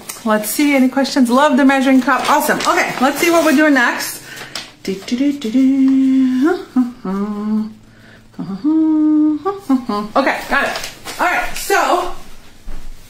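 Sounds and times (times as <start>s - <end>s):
woman humming a tune: 4.8s - 10.8s.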